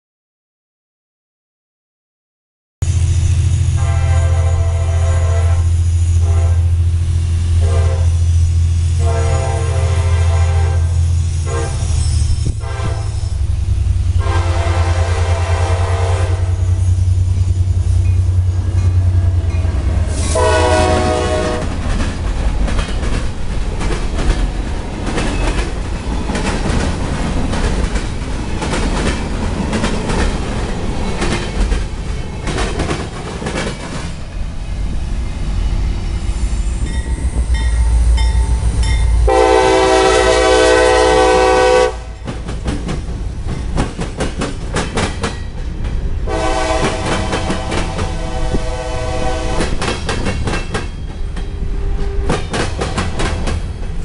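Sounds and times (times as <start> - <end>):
locomotive engine rumble: 2.9 - 54.0
train air horn blasts: 3.6 - 6.9, 7.6 - 13.5, 14.1 - 21.8, 36.8 - 42.3, 46.3 - 49.8
train wheels clattering on track: 11.1 - 54.0.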